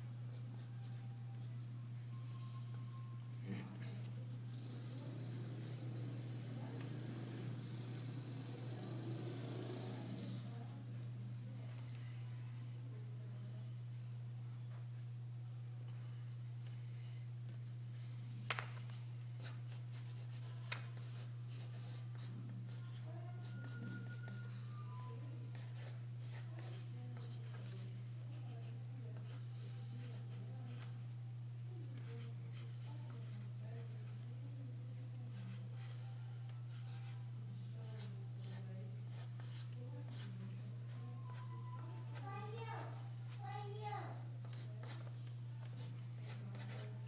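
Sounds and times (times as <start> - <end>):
steady low hum: 0.0 - 47.0
pencil scratching on paper: 4.0 - 10.5, 19.4 - 30.9, 37.8 - 40.3, 44.4 - 46.9.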